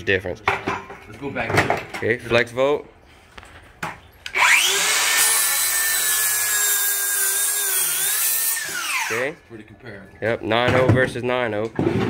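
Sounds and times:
circular saw whining: 4.3s - 9.4s
saw blade rasping through wood: 4.3s - 9.4s.

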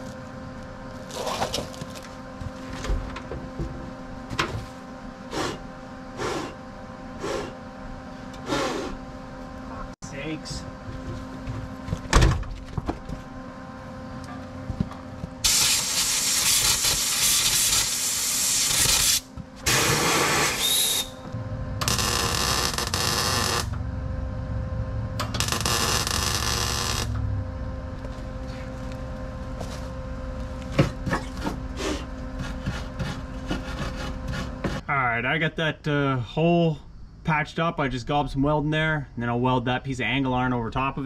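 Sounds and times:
steady low hum: 0.0s - 41.0s
arc welding crackling hiss: 15.4s - 21.2s, 21.8s - 23.8s, 25.2s - 27.2s.

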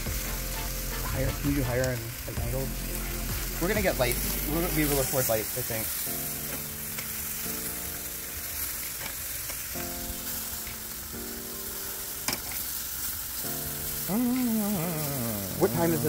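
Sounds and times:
background chords: 0.0s - 8.8s, 13.2s - 16.0s
chicken sizzling on grill: 0.0s - 16.0s.

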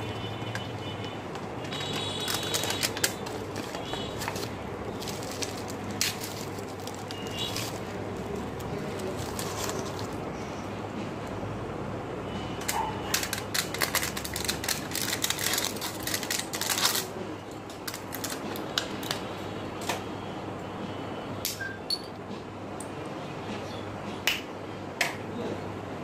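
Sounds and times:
plastic and foil packaging crinkling: 0.0s - 10.3s, 12.6s - 19.2s.

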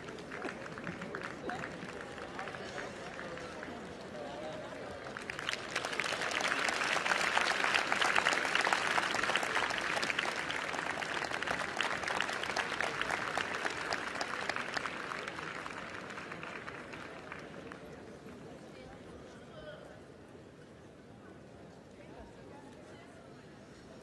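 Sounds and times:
arena audience applauding: 0.0s - 18.6s.

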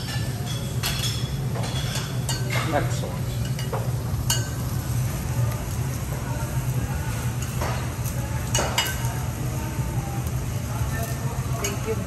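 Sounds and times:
food sizzling on a griddle: 0.0s - 12.0s.

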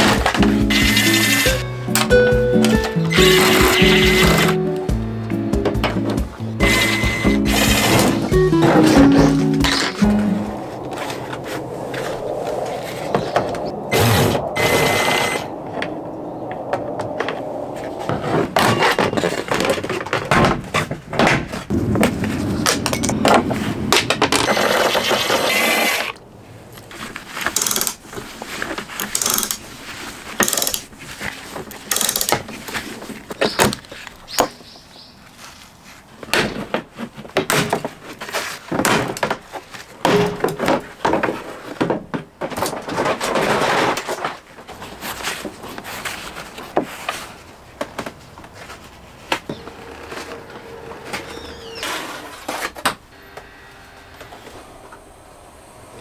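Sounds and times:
cordless drill: 24.6s - 26.2s
plastic trim scraping and rustling: 35.6s - 53.0s.

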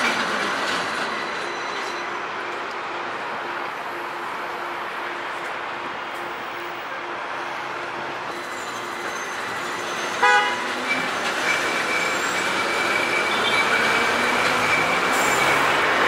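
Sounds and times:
city street traffic: 0.0s - 16.0s
vehicle horn toot: 10.2s - 10.7s.

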